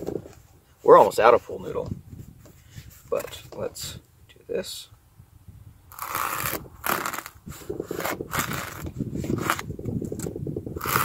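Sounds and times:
knife cutting through foam: 0:05.9 - 0:09.7, 0:10.8 - 0:11.0.

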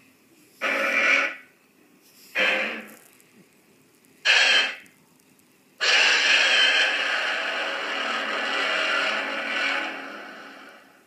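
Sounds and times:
monster roar: 0:05.8 - 0:10.8.

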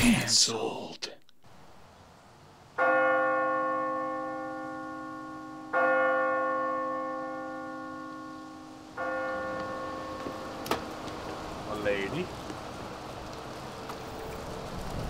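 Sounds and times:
church bell tolling: 0:02.8 - 0:12.4.

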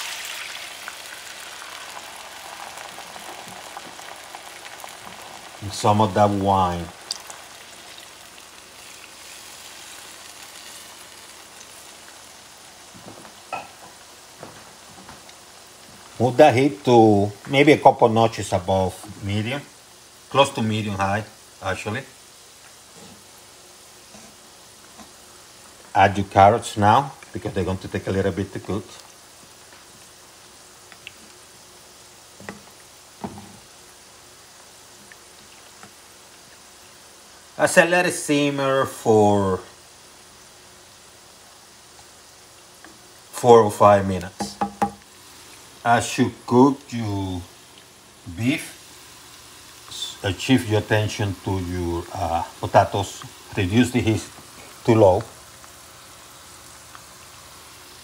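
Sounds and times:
faint simmer: 0:00.0 - 0:58.0
food sizzling in a skillet: 0:00.0 - 0:58.0
spoon knocking against pan: 0:44.4 - 0:45.0.

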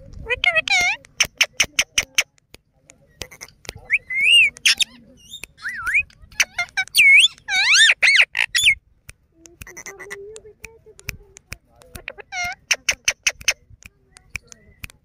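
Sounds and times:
parakeet high whistled calls: 0:03.9 - 0:06.0, 0:06.9 - 0:08.8.

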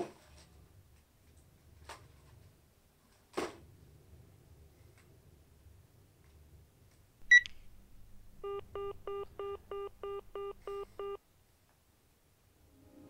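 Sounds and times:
phone beep: 0:07.3 - 0:07.5, 0:08.4 - 0:11.2
pulsing phone line tone: 0:08.4 - 0:11.2.

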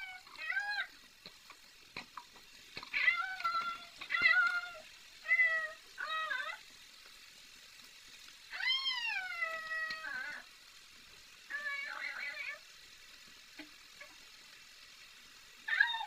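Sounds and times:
cat meowing: 0:02.9 - 0:06.6, 0:08.5 - 0:10.5.

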